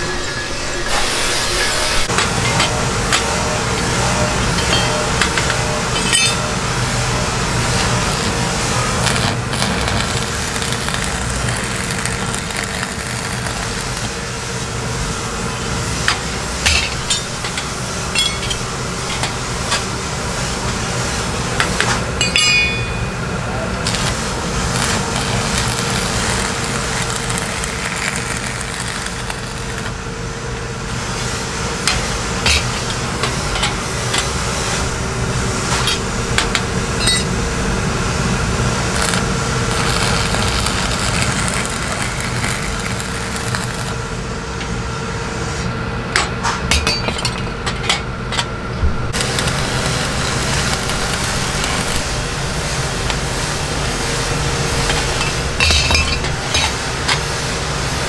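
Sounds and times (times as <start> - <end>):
steady hum: 0.0 - 58.0
arc welding crackling: 0.9 - 44.6, 49.1 - 58.0.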